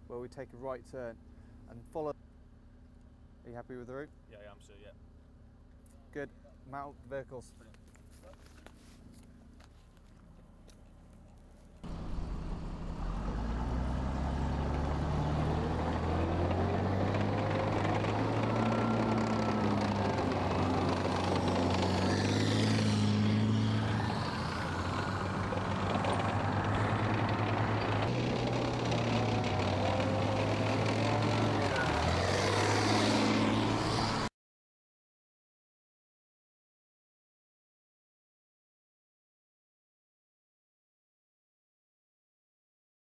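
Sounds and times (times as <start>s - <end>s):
tracked vehicle engine drone: 0.0s - 34.3s.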